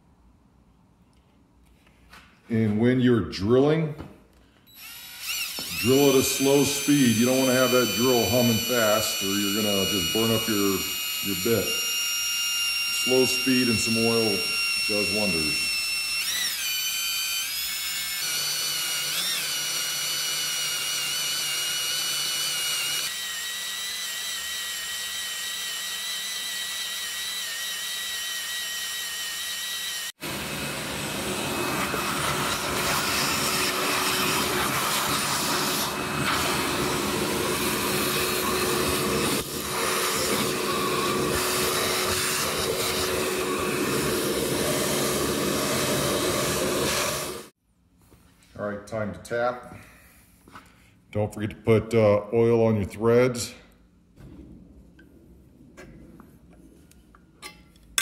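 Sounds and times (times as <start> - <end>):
cordless drill boring into metal: 4.7 - 47.5.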